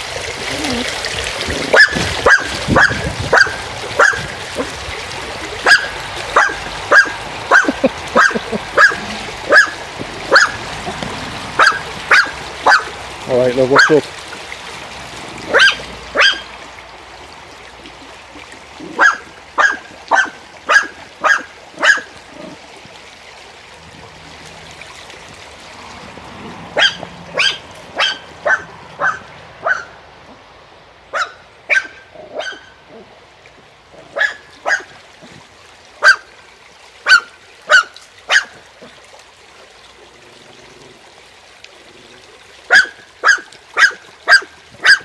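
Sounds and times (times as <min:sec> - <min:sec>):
stream rushing: 0:00.0 - 0:45.0
small dog barking: 0:01.7 - 0:04.8, 0:05.6 - 0:10.6, 0:11.6 - 0:12.9, 0:13.8 - 0:14.0, 0:15.5 - 0:16.5, 0:18.8 - 0:22.6, 0:26.8 - 0:30.0, 0:31.1 - 0:33.0, 0:34.1 - 0:35.0, 0:36.0 - 0:36.3, 0:37.0 - 0:38.6, 0:42.7 - 0:45.0.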